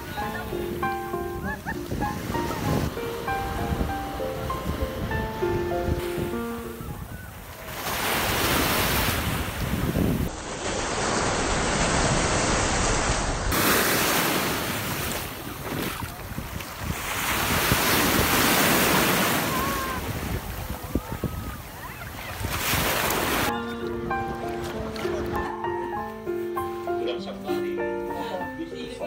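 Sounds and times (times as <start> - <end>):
wind buffeting microphone: 0.0 - 10.4, 14.7 - 25.6
sea surf at shoreline: 0.0 - 29.0.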